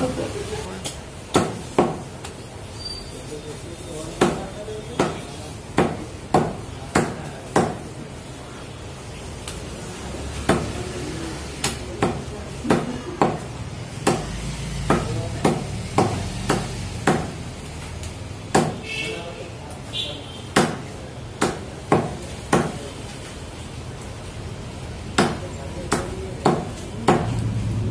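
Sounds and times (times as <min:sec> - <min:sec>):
cleaver chopping meat on block: 0:01.3 - 0:02.0, 0:04.2 - 0:05.2, 0:05.8 - 0:07.9, 0:10.5 - 0:10.8, 0:14.0 - 0:17.4, 0:18.5 - 0:18.8, 0:20.5 - 0:22.8, 0:25.1 - 0:27.4.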